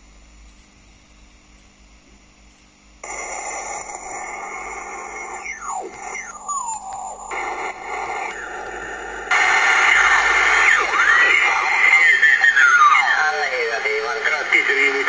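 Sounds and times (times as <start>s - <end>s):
radio hiss: 3.0s - 15.0s
whistles and squealing radio tones: 3.0s - 15.0s.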